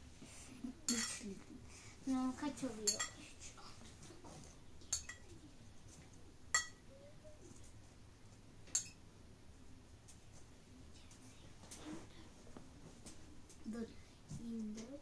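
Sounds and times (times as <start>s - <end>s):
kitchenware clinking: 0.9s - 1.2s, 2.8s - 3.2s, 4.8s - 5.4s, 6.5s - 6.8s, 8.7s - 9.0s.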